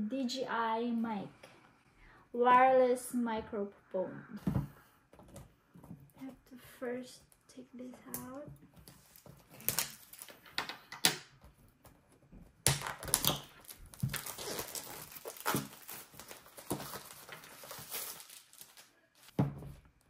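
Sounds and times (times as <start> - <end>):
plastic shrink wrap crinkling: 8.8 - 10.5, 12.8 - 19.3.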